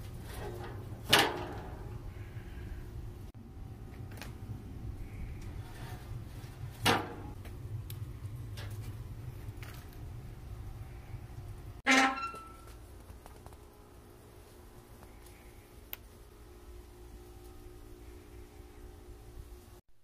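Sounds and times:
low hum: 0:00.0 - 0:19.8.

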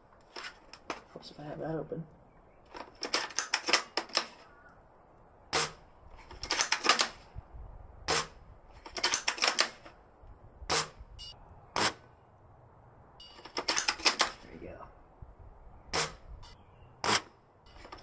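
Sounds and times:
metallic clicks of rifle bolt: 0:02.7 - 0:04.4, 0:06.2 - 0:07.3, 0:08.8 - 0:10.0, 0:13.4 - 0:14.4.

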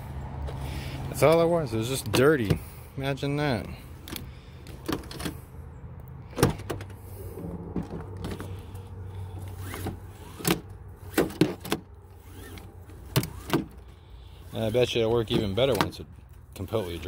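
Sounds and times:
seatbelt webbing retracting: 0:04.0 - 0:05.4, 0:06.3 - 0:17.0.

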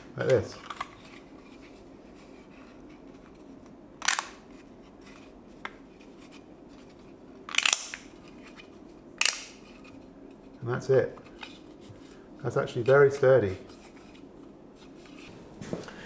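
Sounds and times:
faint steady hum: 0:00.0 - 0:16.0
plastic clips clicking: 0:07.5 - 0:08.1, 0:09.2 - 0:09.6.

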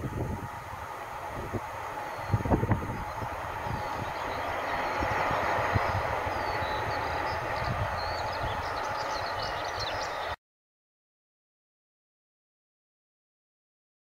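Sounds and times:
freight train rumbling on rails: 0:00.0 - 0:10.4
birds chirping: 0:01.5 - 0:10.4.

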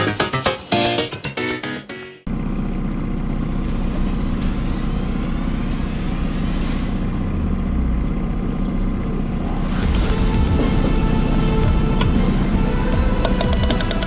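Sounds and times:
outboard motor humming: 0:07.2 - 0:14.0.

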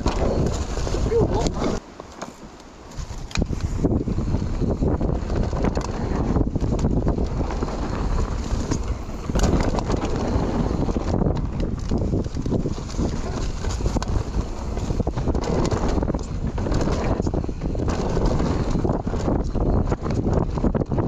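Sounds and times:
bike rattling and knocking: 0:00.0 - 0:21.0
bike tyres rumbling on dirt: 0:00.0 - 0:21.0
wind buffeting microphone: 0:00.0 - 0:21.0.

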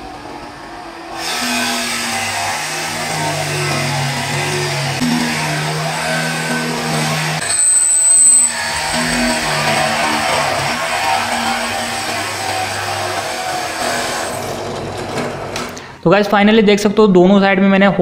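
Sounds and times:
drill press boring through wood: 0:00.0 - 0:15.9
brief high-pitched tone: 0:07.4 - 0:09.9.

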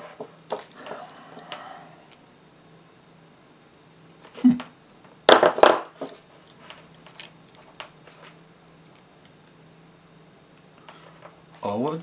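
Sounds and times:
objects set down on a desk: 0:05.3 - 0:06.2.

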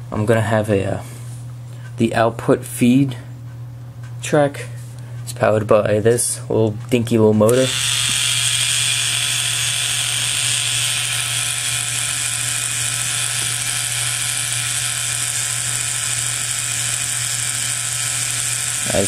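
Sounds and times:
small motor whirring: 0:07.5 - 0:19.0.

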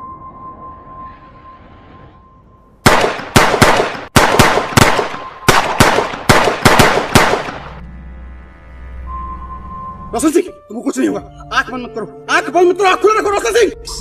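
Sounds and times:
high ringing tone: 0:00.0 - 0:02.8, 0:07.8 - 0:10.6
gunshots: 0:02.8 - 0:07.8.

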